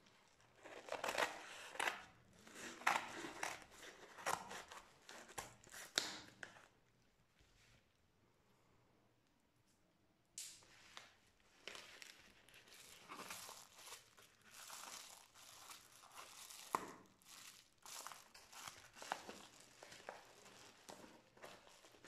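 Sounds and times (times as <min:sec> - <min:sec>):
plastic mailer crinkling: 0:11.6 - 0:22.0.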